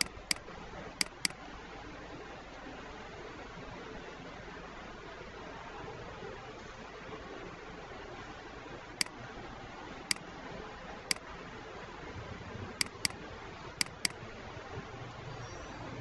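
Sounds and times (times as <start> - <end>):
computer mouse clicking: 0.0 - 0.4, 1.0 - 1.4, 12.8 - 13.2, 13.8 - 14.2.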